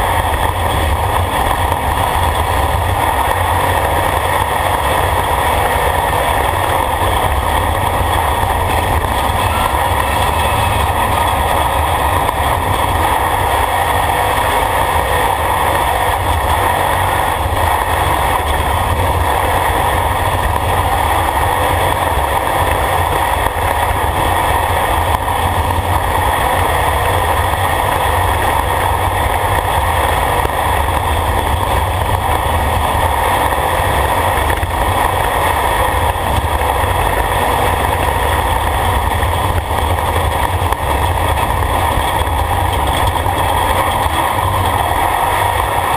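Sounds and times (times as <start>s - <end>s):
engine droning at speed: 0.0s - 45.9s
road noise: 0.0s - 45.9s.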